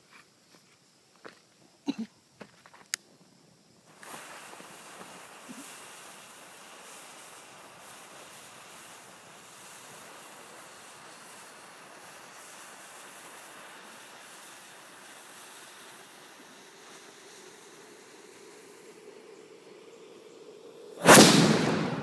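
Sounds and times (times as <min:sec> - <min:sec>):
fuse hissing and crackling: 0:02.6 - 0:22.0.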